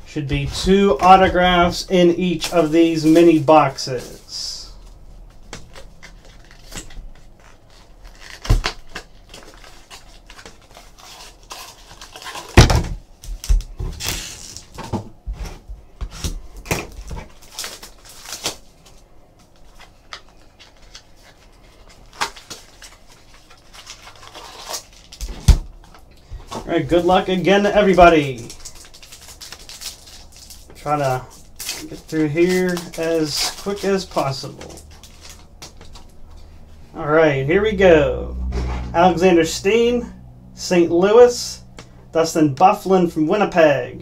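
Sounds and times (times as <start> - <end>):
cardboard box and foil packs rustling: 0.6 - 14.9, 15.5 - 36.5
heavy thump: 38.4 - 39.1.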